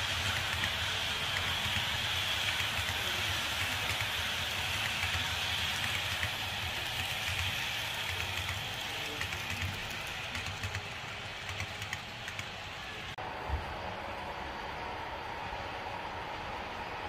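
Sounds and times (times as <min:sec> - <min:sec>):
model train wheels clattering on track: 0:00.0 - 0:12.6.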